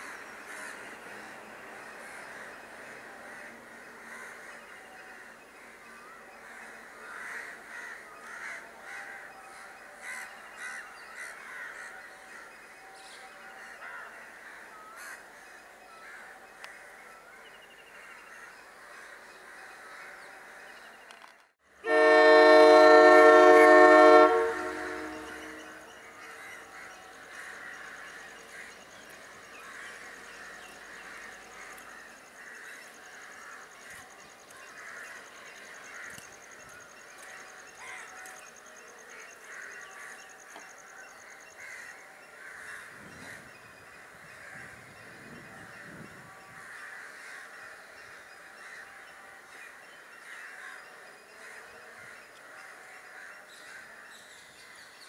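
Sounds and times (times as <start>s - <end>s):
crows cawing: 0.0s - 0.8s, 1.8s - 4.6s, 6.4s - 12.5s, 13.8s - 15.3s, 23.3s - 28.8s, 29.6s - 34.0s, 37.3s - 38.4s, 41.2s - 43.4s, 46.5s - 54.1s
train horn blast: 21.8s - 25.9s.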